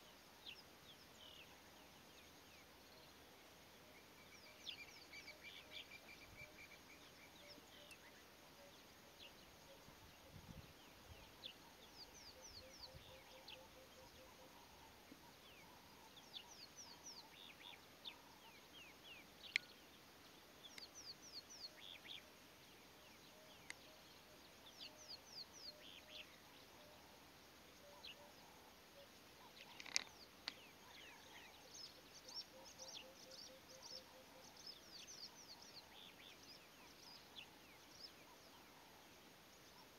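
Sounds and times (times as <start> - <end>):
small birds chirping faintly: 0.0 - 39.9.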